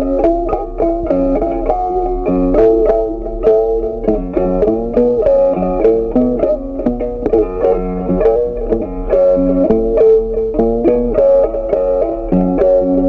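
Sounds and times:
plucked-string melody: 0:00.0 - 0:13.0
steady low bass: 0:00.0 - 0:13.0.

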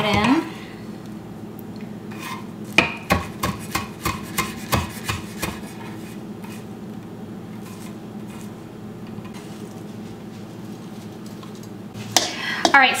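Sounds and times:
knife chopping on wooden board: 0:02.8 - 0:05.6.

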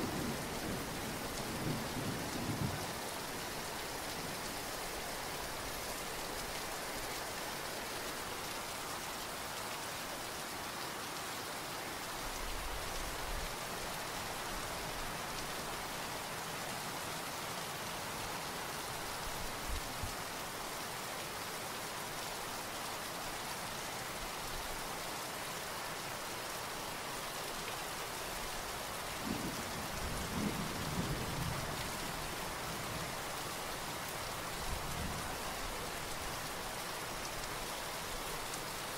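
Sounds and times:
steady rain: 0:00.0 - 0:38.9.

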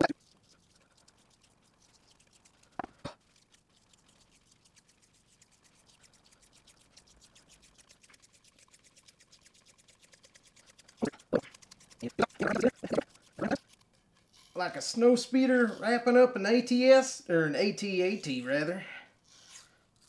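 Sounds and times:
tape peeling crackle: 0:19.2 - 0:20.0.

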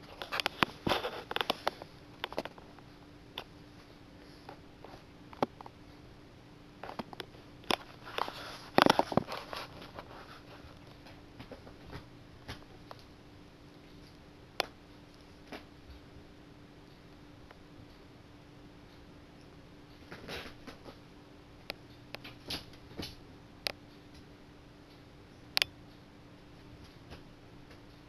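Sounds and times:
scratching and rustling: 0:00.0 - 0:02.9, 0:06.8 - 0:13.1, 0:20.0 - 0:21.1
faint steady hum: 0:00.0 - 0:28.0.

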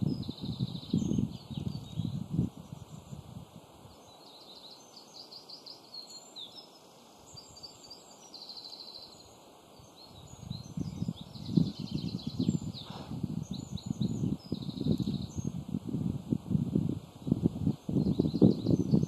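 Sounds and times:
wind buffeting microphone: 0:00.0 - 0:04.0, 0:10.0 - 0:19.0
songbirds singing: 0:00.0 - 0:19.0.

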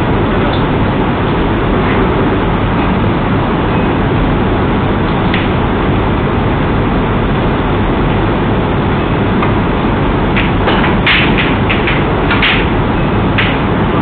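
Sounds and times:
background hiss and hum: 0:00.0 - 0:14.0.

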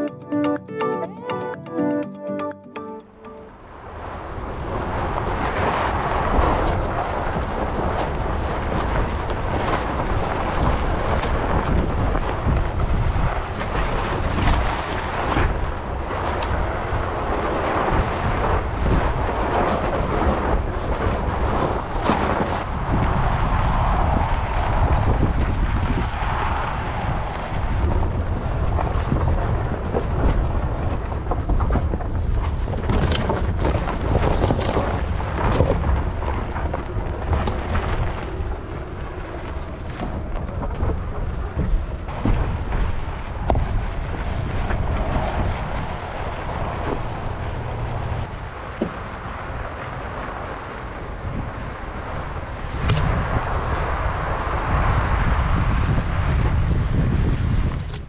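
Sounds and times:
wind buffeting microphone: 0:03.9 - 0:58.0
tyres rolling over gravel: 0:27.8 - 0:47.2, 0:48.2 - 0:55.6.

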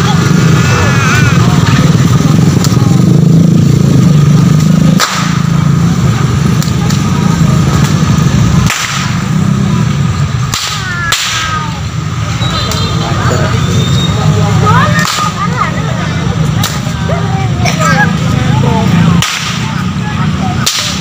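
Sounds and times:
whip cracking: 0:05.0 - 0:05.5, 0:08.6 - 0:09.2, 0:10.5 - 0:11.6, 0:19.2 - 0:19.7, 0:20.6 - 0:21.0.

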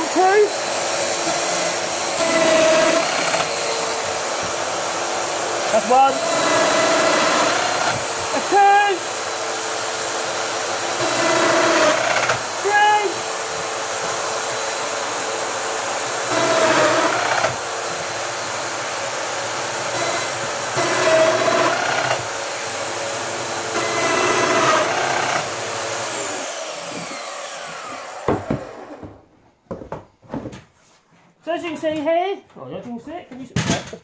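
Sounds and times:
power tool motor whine: 0:00.0 - 0:29.2
machine knocking on bench: 0:28.2 - 0:30.1.

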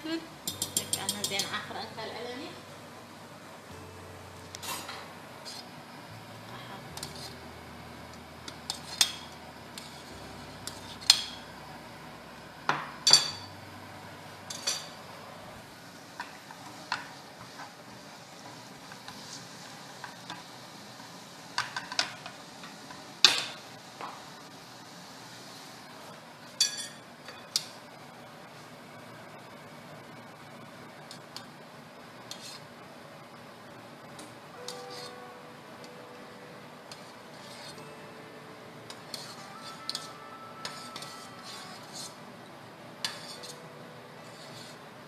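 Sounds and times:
spoons clinking against metal pots: 0:00.4 - 0:01.8, 0:08.7 - 0:10.0, 0:13.0 - 0:13.5, 0:14.5 - 0:15.0, 0:26.6 - 0:27.0.

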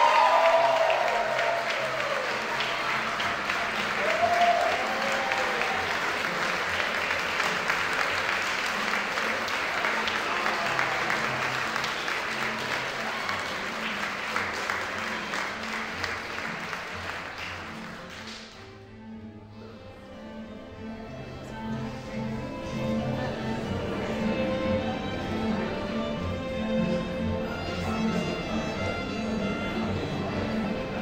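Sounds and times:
crowd applauding: 0:00.0 - 0:18.6.

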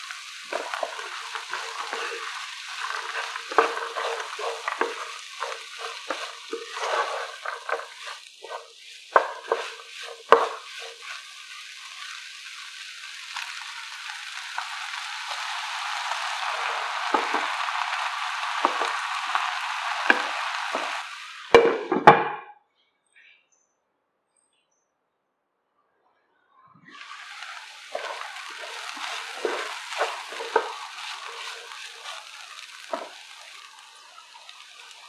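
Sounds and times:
wooden spatula scraping pan: 0:00.0 - 0:12.2, 0:14.6 - 0:22.0, 0:27.0 - 0:33.7
vegetables sizzling in oil: 0:00.0 - 0:22.0, 0:26.9 - 0:35.0.

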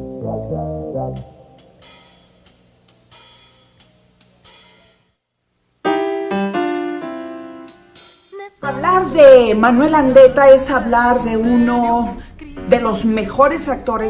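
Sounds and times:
loud keyboard chord phrase: 0:00.0 - 0:01.6, 0:05.8 - 0:10.2
soft cymbal and hi-hat strokes: 0:01.2 - 0:05.9, 0:07.6 - 0:10.1.

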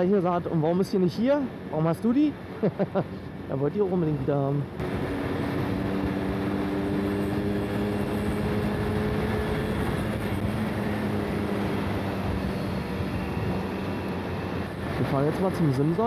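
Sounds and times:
two-stroke moped engine cruising: 0:00.0 - 0:16.0
wind and road noise: 0:00.0 - 0:16.0.

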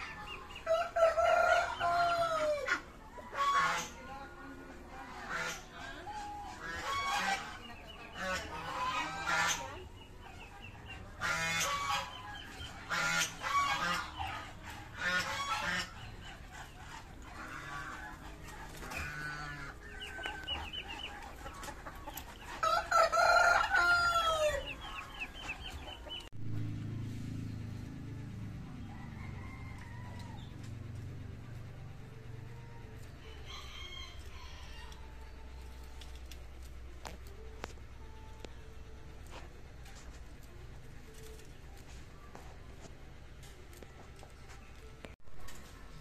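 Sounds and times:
chickens clucking: 0:00.0 - 0:46.0
steady low hum: 0:00.0 - 0:46.0
rooster crowing: 0:00.6 - 0:02.8, 0:22.6 - 0:24.8, 0:28.8 - 0:30.7, 0:33.2 - 0:35.2.

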